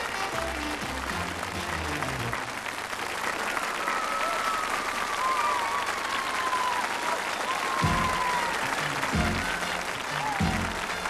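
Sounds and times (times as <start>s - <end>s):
band music: 0.0s - 2.4s, 7.8s - 11.0s
audience applauding and cheering: 0.0s - 11.0s.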